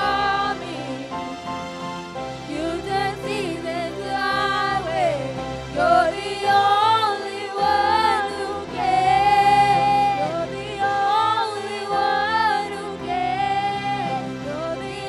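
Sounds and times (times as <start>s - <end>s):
sustained instrumental chords: 0.0s - 15.0s
woman singing into a microphone: 2.5s - 15.0s.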